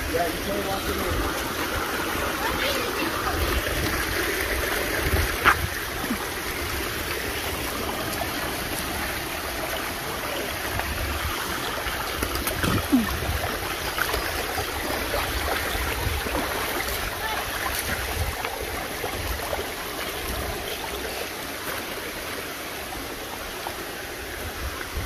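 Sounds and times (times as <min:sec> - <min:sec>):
stream running over rocks: 0:00.0 - 0:25.0.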